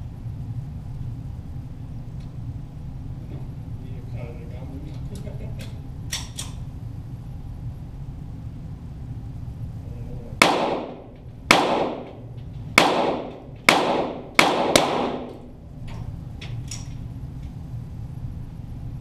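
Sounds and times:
pistol shots echoing: 10.4 - 15.5.

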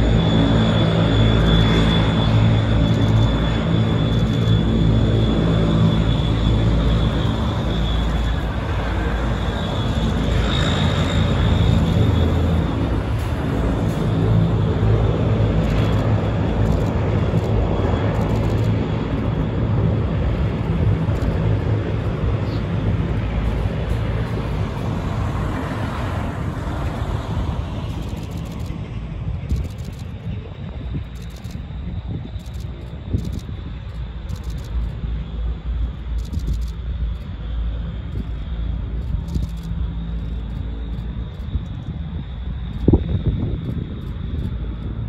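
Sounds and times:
military aircraft engines: 0.0 - 45.0.

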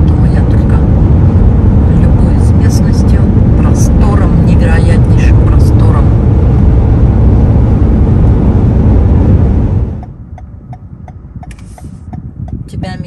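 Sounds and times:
engine and tyre noise: 0.0 - 13.0
road and wind noise: 0.0 - 13.0.

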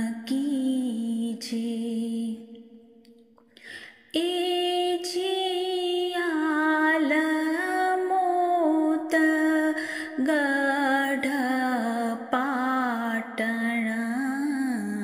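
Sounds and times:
breath: 3.4 - 4.1, 9.8 - 10.2.

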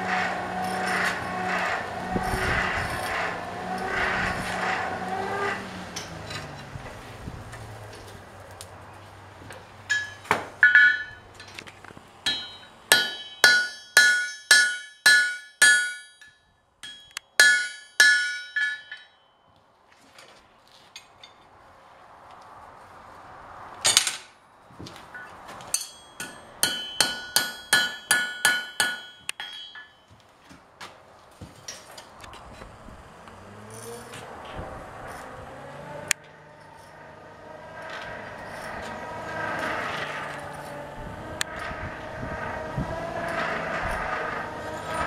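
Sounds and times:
hammer striking iron on anvil: 9.9 - 11.5, 12.2 - 19.2, 25.2 - 30.2.

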